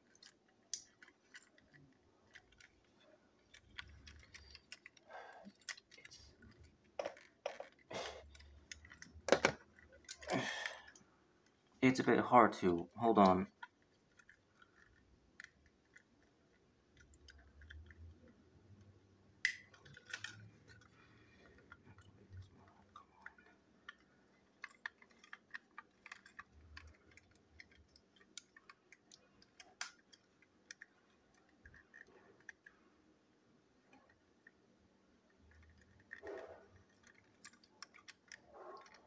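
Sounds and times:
clicks of plastic parts: 23.3 - 32.7.

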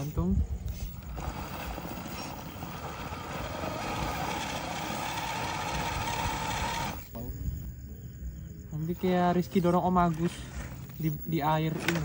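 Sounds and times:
toy car motor whining: 0.7 - 7.1.

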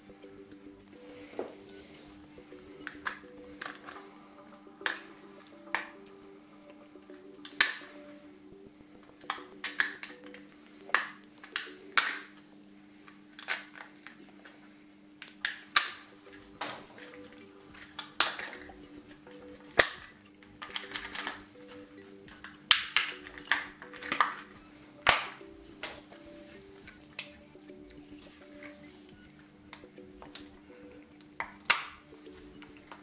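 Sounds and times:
plastic packaging cracking and snapping: 13.3 - 14.2, 22.4 - 24.5, 31.4 - 32.0.

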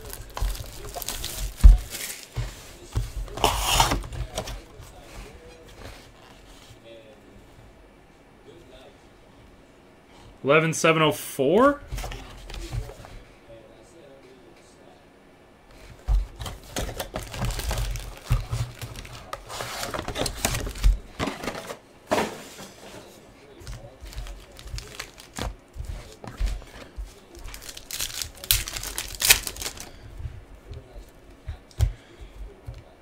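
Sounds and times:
wrapper tearing open: 0.0 - 2.3, 27.5 - 29.9
card pack wrappers crinkling: 0.0 - 2.4, 16.6 - 21.0, 23.7 - 30.0.

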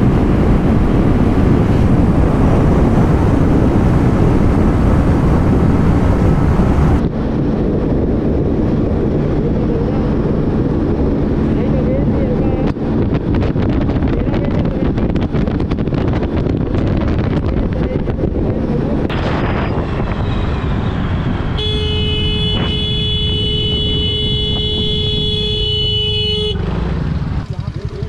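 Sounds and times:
scooter engine and road noise: 0.0 - 28.0
wind buffeting microphone: 0.0 - 28.0
vehicle horn: 21.5 - 26.7.

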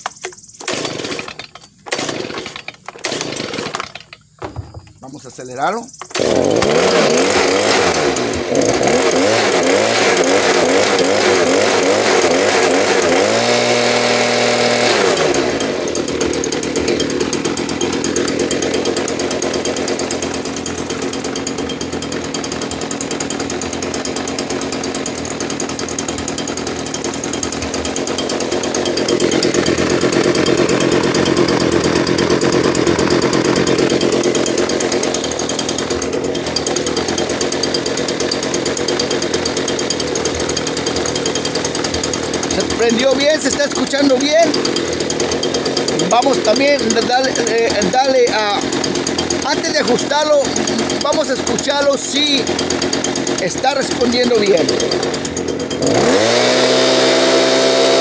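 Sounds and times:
leaf blower engine revving: 0.1 - 58.0
person speaking: 4.6 - 7.7, 42.5 - 44.7, 45.9 - 48.8, 49.4 - 52.5, 53.4 - 55.0.

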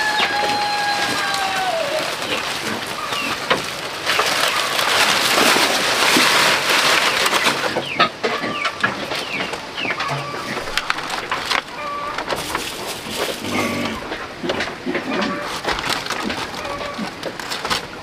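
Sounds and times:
rooster crowing: 0.0 - 2.2
dry leaves rustling and crackling: 0.0 - 18.0.

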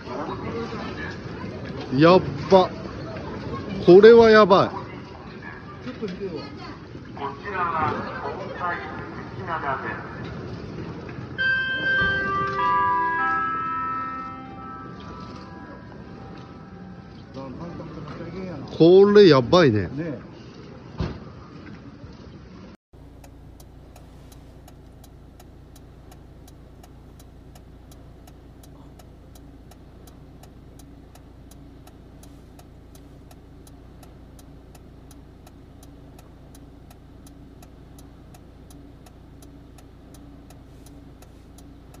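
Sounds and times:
car engine idling: 23.0 - 42.0
indicator relay ticking: 23.0 - 42.0.

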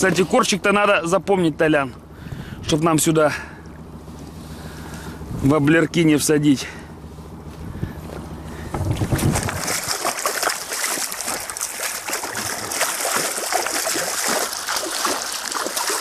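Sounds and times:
fish splashing in water: 8.7 - 16.0.

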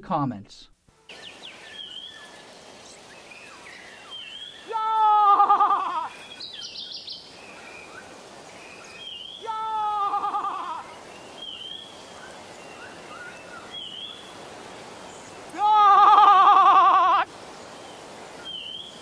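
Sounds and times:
birds chirping: 1.1 - 19.0
man's quavering cry: 4.6 - 6.2, 9.4 - 10.9, 15.5 - 17.3.

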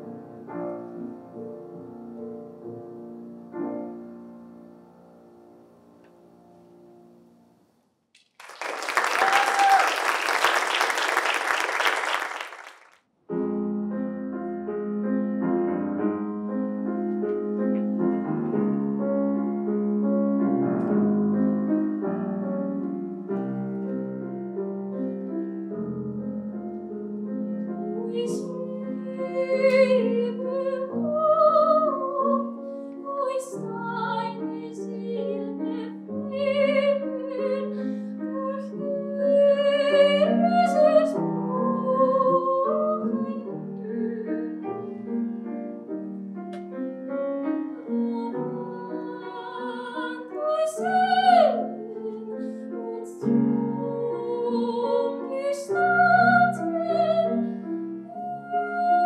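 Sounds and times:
grand piano playing: 0.0 - 7.5, 13.3 - 59.0
audience applause: 8.2 - 13.0
woman singing classically: 28.0 - 44.7, 47.8 - 57.4, 58.1 - 59.0.

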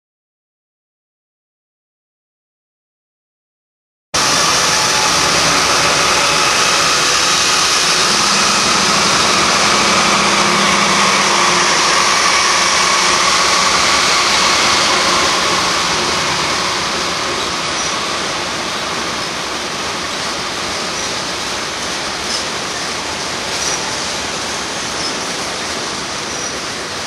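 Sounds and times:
diesel locomotives running: 4.2 - 27.0
wheel and rail noise: 4.2 - 27.0.

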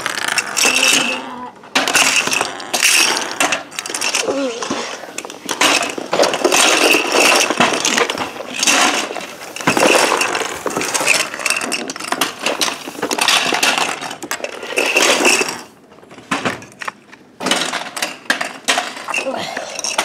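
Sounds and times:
plastic toy pieces clattering: 0.0 - 20.0.

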